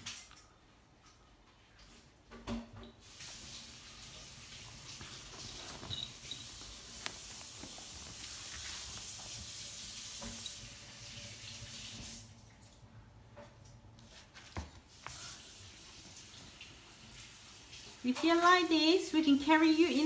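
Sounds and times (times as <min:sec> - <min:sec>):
fabric bag rustling: 0:04.8 - 0:09.6.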